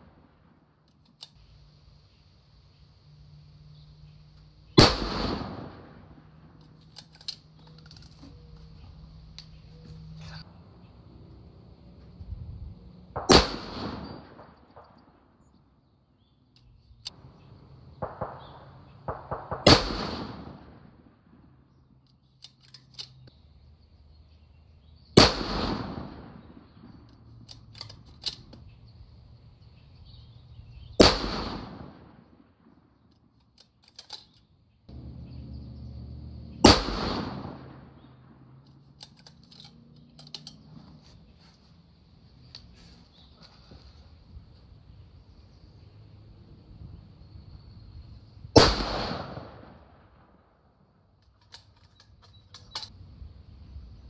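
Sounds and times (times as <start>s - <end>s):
rifle shots: 4.7s - 6.4s, 13.2s - 15.0s, 18.0s - 21.1s, 25.2s - 27.0s, 31.0s - 32.4s, 36.6s - 38.4s, 48.6s - 50.3s.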